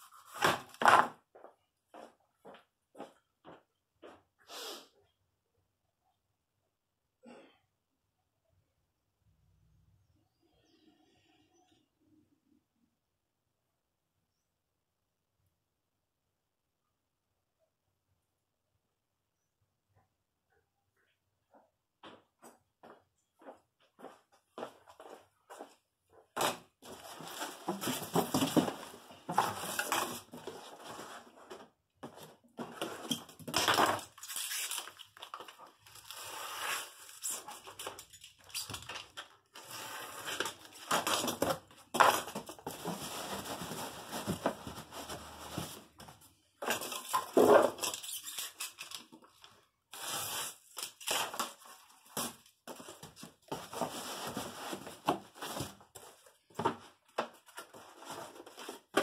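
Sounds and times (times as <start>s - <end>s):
cardboard scraping and rustling: 26.4s - 33.3s, 39.5s - 48.0s, 50.0s - 56.9s.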